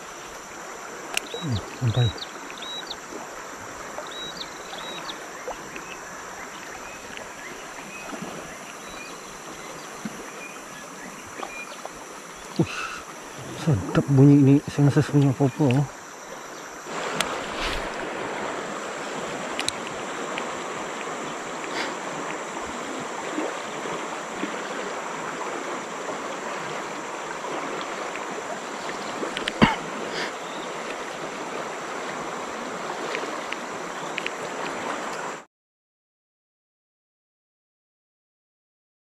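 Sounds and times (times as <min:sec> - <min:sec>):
river water over rapids: 0:00.0 - 0:35.5
faint clicks: 0:19.5 - 0:20.5, 0:33.1 - 0:35.2.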